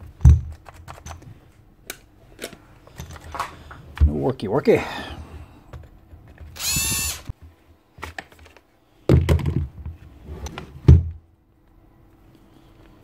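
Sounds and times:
small power tool whirring: 6.6 - 7.3
plastic casing knocking and clattering: 9.1 - 10.0.

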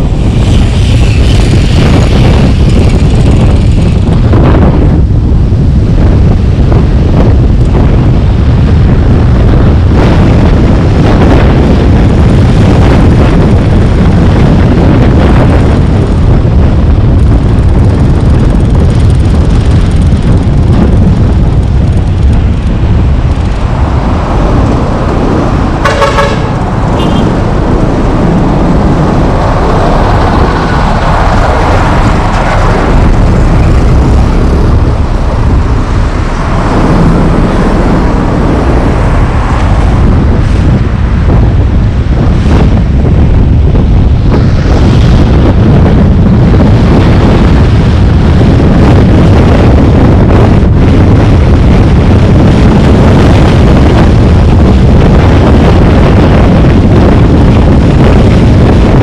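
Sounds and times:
car road noise: 0.0 - 59.0
wind on microphone: 0.0 - 59.0
car horn beeps: 25.8 - 27.4.

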